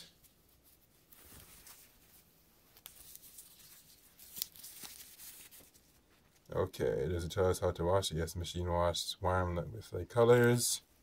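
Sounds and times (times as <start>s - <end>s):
cloth rustling: 0.0s - 6.5s.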